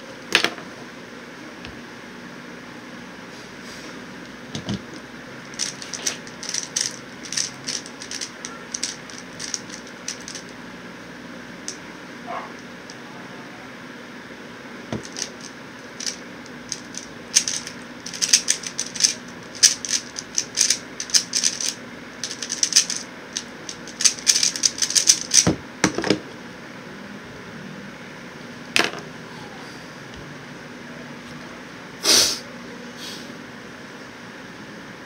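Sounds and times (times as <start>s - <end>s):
puzzle cube plastic clicking: 4.6s - 10.5s, 15.0s - 25.5s.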